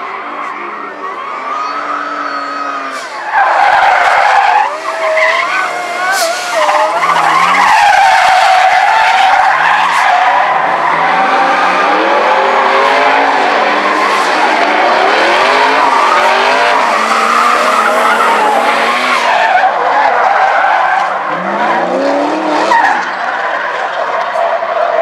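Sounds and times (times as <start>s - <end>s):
tyres squealing: 0.5s - 12.6s, 15.2s - 21.9s
car engine revving: 3.6s - 24.4s.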